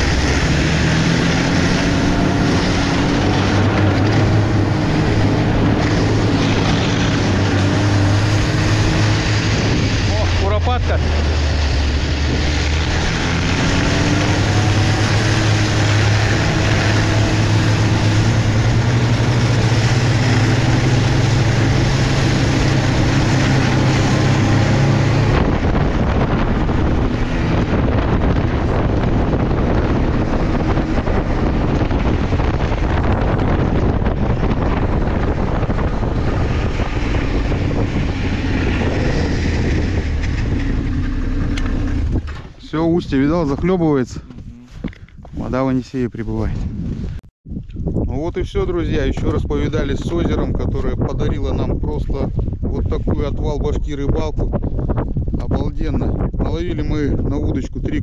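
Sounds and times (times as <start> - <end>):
vehicle engine running: 0.0 - 45.4
wind noise on microphone: 0.0 - 58.0.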